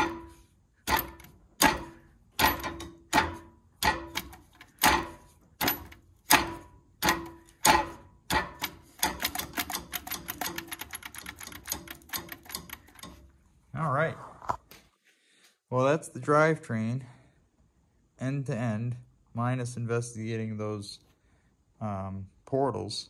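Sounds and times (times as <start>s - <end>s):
metallic ratchet clicks: 0.9s - 13.3s.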